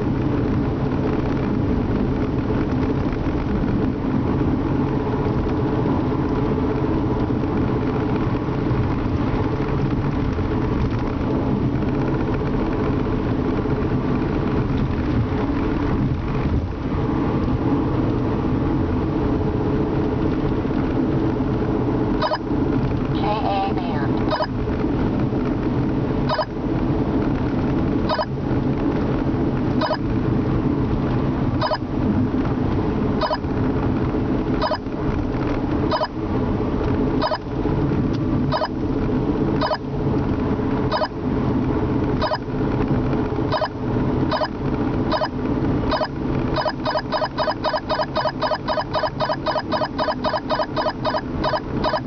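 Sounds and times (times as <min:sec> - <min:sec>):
in-car road noise: 0:00.0 - 0:52.0
radar detector beeps: 0:22.2 - 0:22.4, 0:24.3 - 0:24.5, 0:26.3 - 0:26.5, 0:28.1 - 0:28.3, 0:31.6 - 0:31.8, 0:33.2 - 0:33.4, 0:34.6 - 0:34.8, 0:35.9 - 0:36.1, 0:37.2 - 0:37.4, 0:38.5 - 0:38.7, 0:39.6 - 0:39.8, 0:40.9 - 0:41.1, 0:42.2 - 0:42.4, 0:43.5 - 0:43.7, 0:44.3 - 0:44.5, 0:45.1 - 0:45.3, 0:45.9 - 0:52.0.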